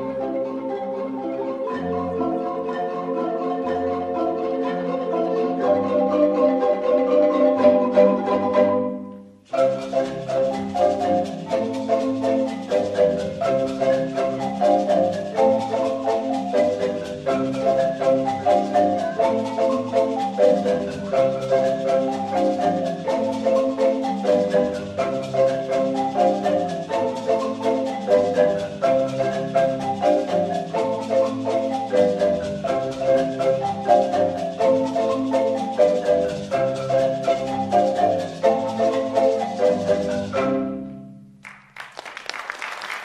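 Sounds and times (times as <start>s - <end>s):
marimbas playing fast pattern: 0.0s - 41.4s.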